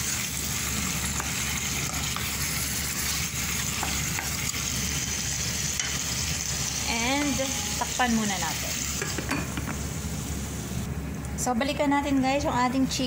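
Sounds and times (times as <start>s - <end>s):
chicken sizzling in hot oil: 0.0s - 9.2s.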